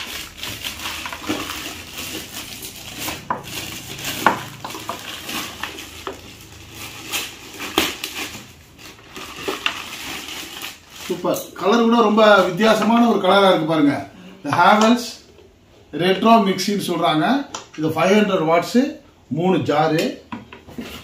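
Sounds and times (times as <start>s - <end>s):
plastic wrapping crinkling: 0.0s - 13.2s.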